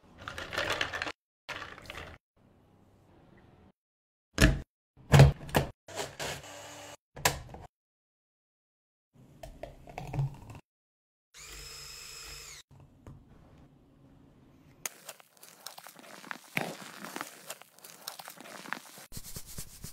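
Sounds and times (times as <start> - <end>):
electric milk frother whirring: 11.4 - 12.6
plastic piping bag crinkling: 14.9 - 19.1.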